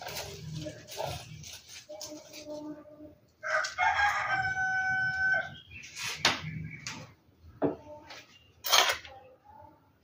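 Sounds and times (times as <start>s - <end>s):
rooster crowing: 3.4s - 5.5s.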